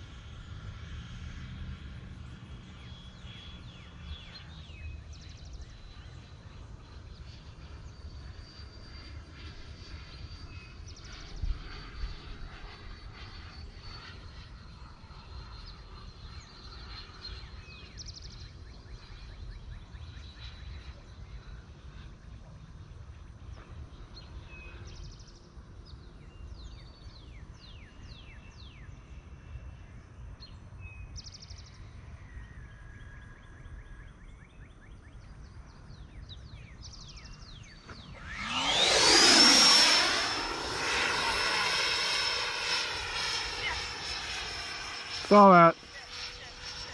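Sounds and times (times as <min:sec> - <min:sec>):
high-pitched jet whine: 0:37.2 - 0:46.9.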